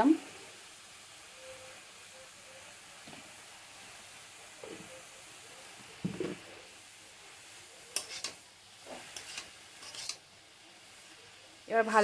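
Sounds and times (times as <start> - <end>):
vegetables sizzling in oil: 0.0 - 12.0
metal spatula scraping a pan: 7.9 - 10.3.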